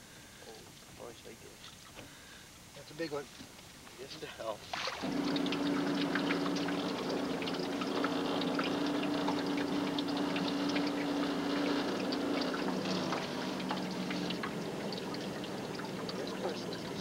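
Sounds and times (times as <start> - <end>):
water splashing along hull: 4.1 - 17.0
outboard motor running: 4.7 - 17.0.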